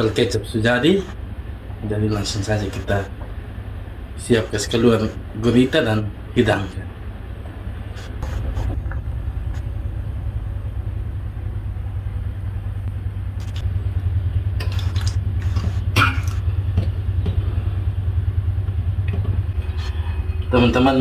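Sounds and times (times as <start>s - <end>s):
low rumble: 6.8s - 21.0s.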